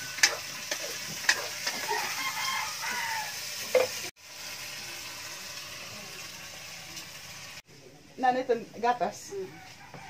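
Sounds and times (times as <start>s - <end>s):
food sizzling: 0.0s - 10.0s
rooster crowing: 1.9s - 3.5s, 9.4s - 10.0s.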